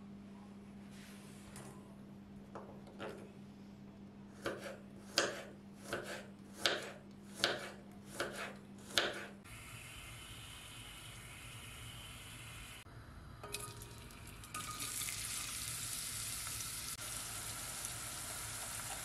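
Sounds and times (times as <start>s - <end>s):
knife chopping on wooden board: 4.4s - 9.4s.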